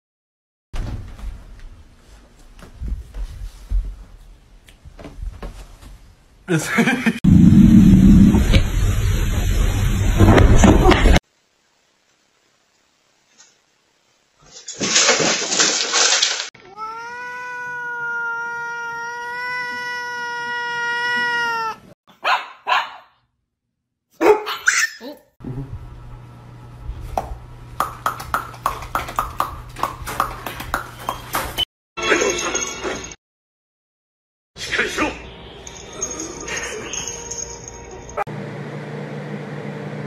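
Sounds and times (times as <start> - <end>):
cat yowling: 16.6 - 21.9.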